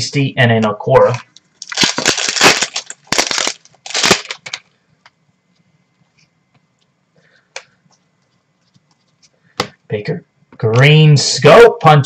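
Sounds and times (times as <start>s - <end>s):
foil wrapper tearing and crinkling: 1.1s - 4.7s.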